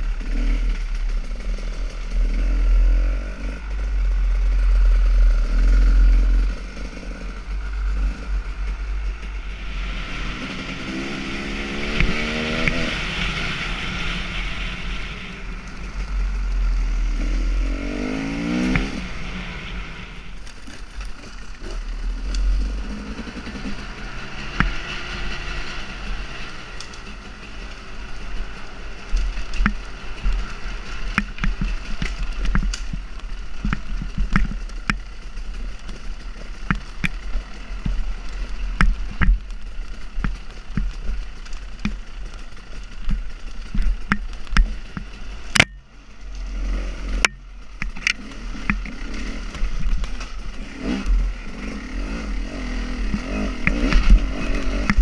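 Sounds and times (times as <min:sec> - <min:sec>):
motorcycle engine revving: 0:00.0 - 0:55.0
motorcycle jolting knocks and clatter: 0:26.2 - 0:55.0.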